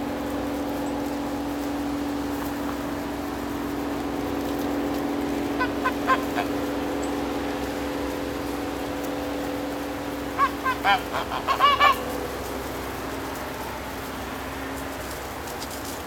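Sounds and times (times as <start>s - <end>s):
waterfowl calls: 5.2s - 7.3s, 10.3s - 12.4s.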